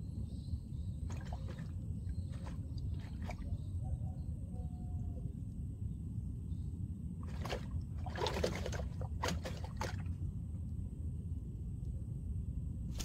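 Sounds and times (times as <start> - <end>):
steady low rumble: 0.0 - 13.0
water splashing and sloshing: 1.0 - 3.8, 7.2 - 10.5.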